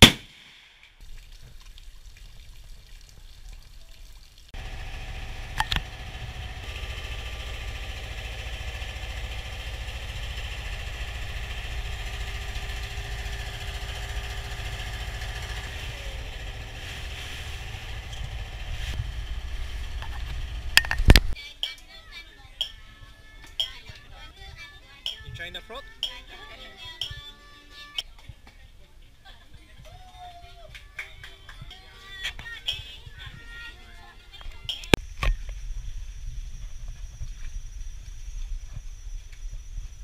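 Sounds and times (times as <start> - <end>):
boat motor running: 4.6 - 21.4.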